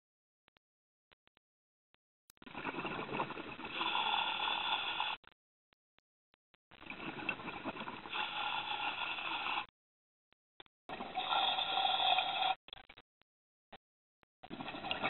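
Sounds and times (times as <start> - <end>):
underwater exhaled bubbles: 2.4 - 5.2, 6.8 - 9.7, 14.5 - 15.0.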